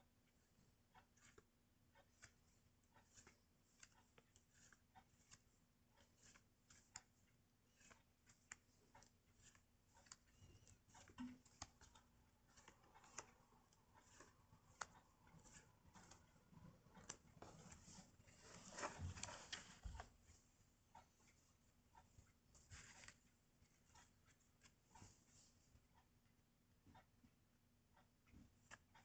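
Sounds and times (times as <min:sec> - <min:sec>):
paper cards clicking and rustling: 0:02.0 - 0:07.1, 0:07.7 - 0:16.3, 0:16.9 - 0:20.1, 0:22.7 - 0:23.2.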